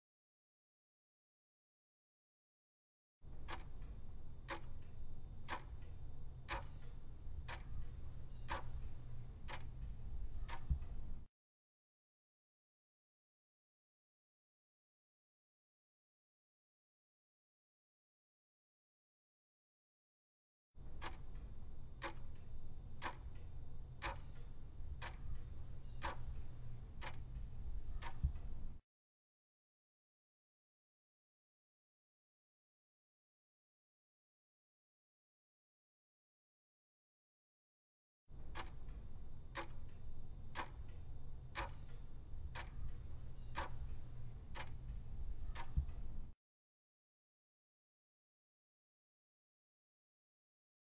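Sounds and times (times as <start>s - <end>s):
clock ticking: 3.3s - 11.3s, 20.8s - 28.8s, 38.3s - 46.4s
low steady hum: 3.3s - 11.3s, 20.8s - 28.8s, 38.3s - 46.4s.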